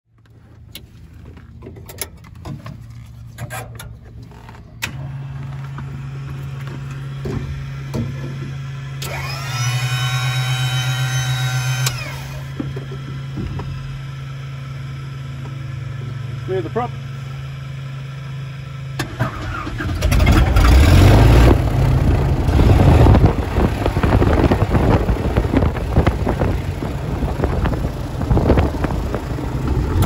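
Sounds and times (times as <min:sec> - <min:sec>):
small electric motor whining: 0:09.0 - 0:12.6.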